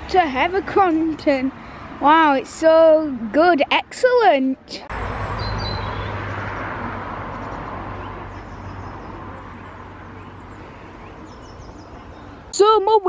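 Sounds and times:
outdoor rushing noise: 4.8 - 12.5.

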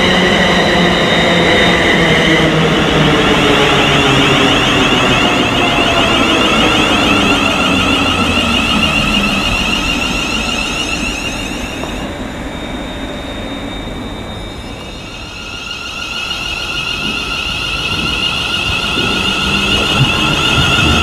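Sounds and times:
electric train traction whine: 0.0 - 21.0
wheel-on-rail rumble: 16.2 - 21.0.

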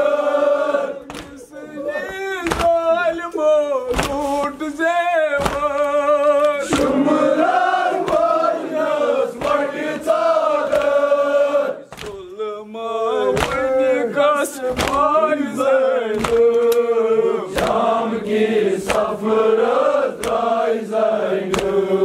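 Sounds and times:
men chanting a lament: 0.0 - 22.0
chest-beating claps: 0.9 - 3.2, 3.8 - 12.4, 13.2 - 13.9, 14.5 - 22.0.

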